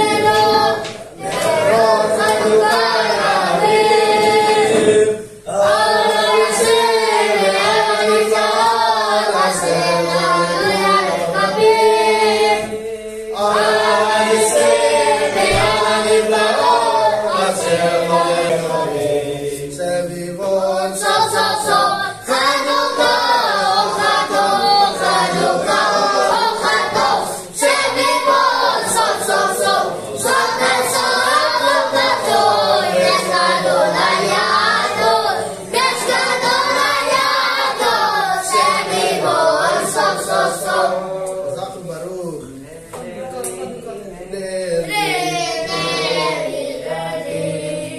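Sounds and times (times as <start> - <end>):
men and children singing: 0.0 - 47.9.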